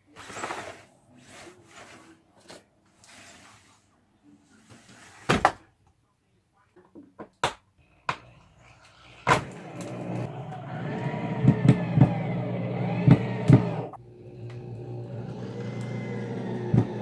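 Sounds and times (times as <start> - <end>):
power drill running in spurts: 8.6 - 17.0.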